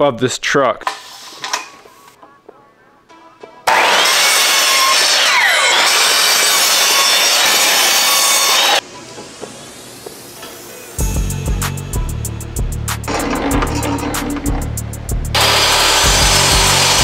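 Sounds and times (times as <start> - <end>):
miter saw cutting wood: 3.6 - 8.8, 13.1 - 14.8, 15.4 - 17.0.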